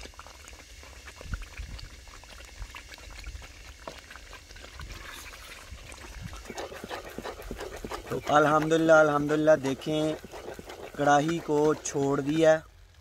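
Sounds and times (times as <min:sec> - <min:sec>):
wooden spatula scraping pot: 0:06.3 - 0:12.6.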